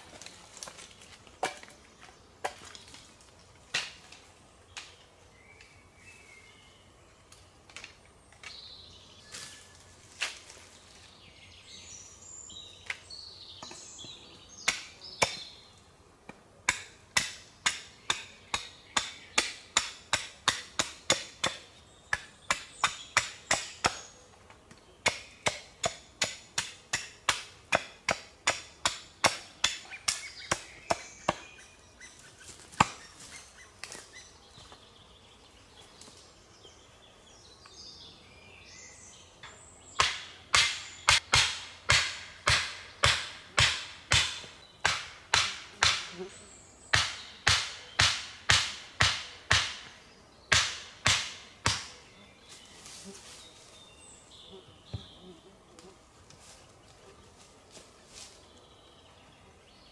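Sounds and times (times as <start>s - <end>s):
birds chirping: 0.0s - 16.2s, 16.8s - 59.9s
axe chopping wood: 14.6s - 15.5s, 16.7s - 24.1s, 25.0s - 31.5s, 32.7s - 33.1s, 40.0s - 46.1s, 46.9s - 49.9s, 50.5s - 51.9s.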